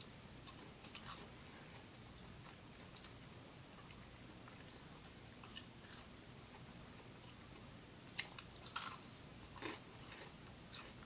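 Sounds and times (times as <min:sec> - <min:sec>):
person chewing food: 0:00.4 - 0:11.0
crunchy bite: 0:08.2 - 0:10.9.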